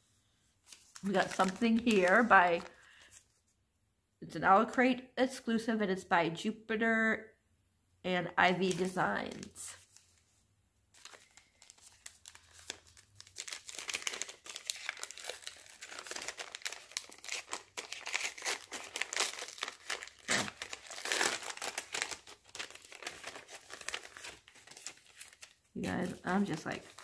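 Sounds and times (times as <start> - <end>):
packaging crinkling and tearing: 0.7 - 3.3, 8.6 - 10.2, 11.0 - 27.0.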